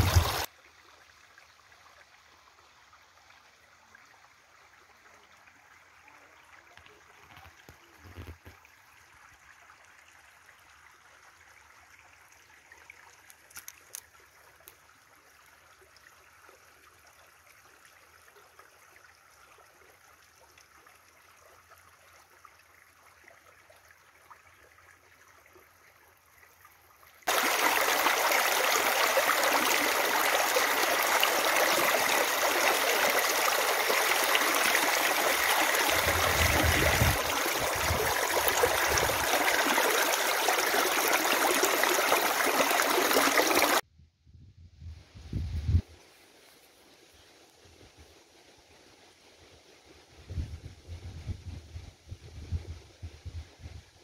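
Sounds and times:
stream splashing over rocks: 0.0s - 2.2s, 27.2s - 43.8s
faint outdoor hiss: 44.0s - 54.0s.

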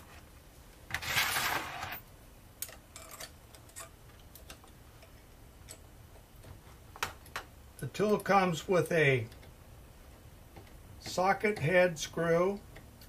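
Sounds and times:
metal spanner scraping on table: 0.9s - 2.0s
light metallic clicks and taps: 2.6s - 9.6s.

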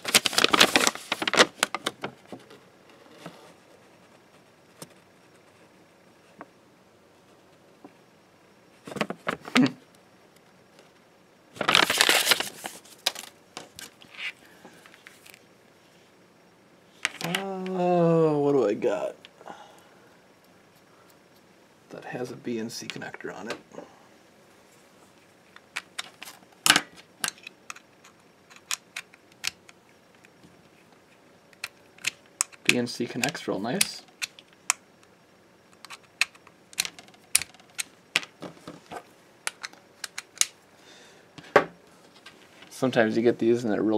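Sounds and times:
paper rustling and crinkling: 0.0s - 2.4s, 11.6s - 15.4s.

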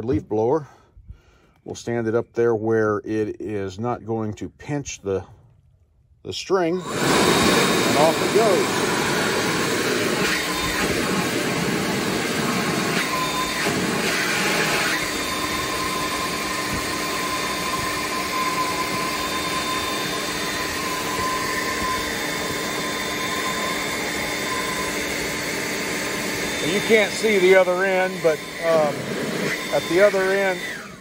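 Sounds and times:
leaf blower rushing air: 6.7s - 31.0s.

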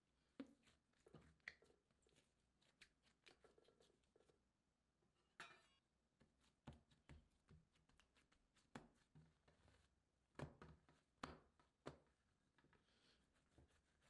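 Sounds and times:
hands patting bread dough: 6.2s - 12.2s.

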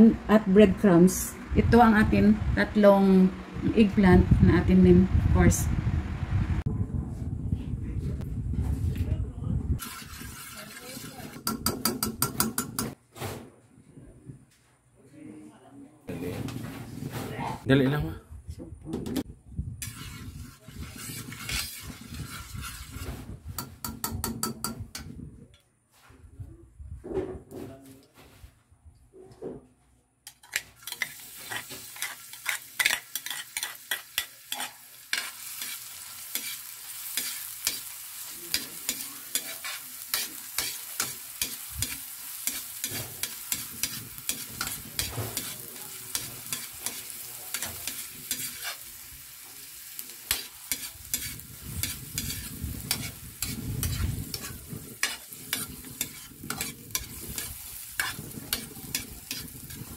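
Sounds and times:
onion sizzling in a wok: 9.7s - 13.0s, 19.8s - 25.1s, 30.3s - 59.9s
spatula scraping and clacking on pan: 9.8s - 13.0s, 19.2s - 25.1s, 30.3s - 59.9s.

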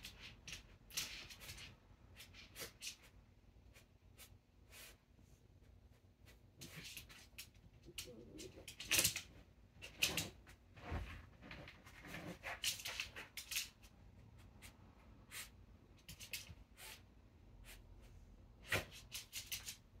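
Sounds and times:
dog sniffing: 1.2s - 7.1s, 14.4s - 19.5s.

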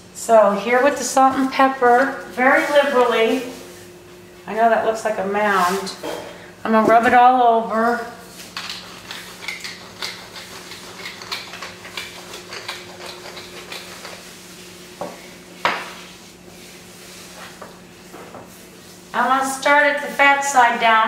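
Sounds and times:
pepper mill grinding: 8.6s - 14.2s.

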